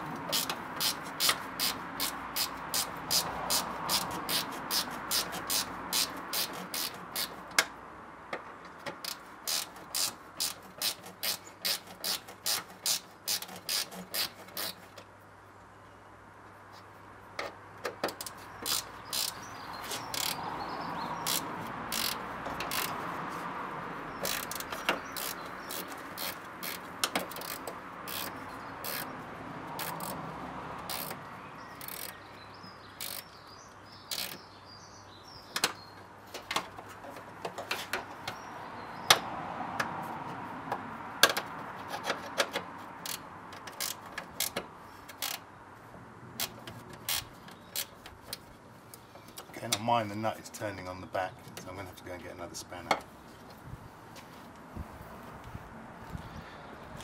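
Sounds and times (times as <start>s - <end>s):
ratchet spanner clicking: 0.2s - 7.7s, 8.8s - 15.0s, 18.1s - 20.4s, 21.2s - 23.0s, 24.2s - 29.1s, 29.8s - 30.2s, 30.8s - 31.2s, 31.8s - 32.2s, 33.0s - 33.4s, 34.1s - 34.4s, 41.2s - 45.4s, 46.4s - 48.4s.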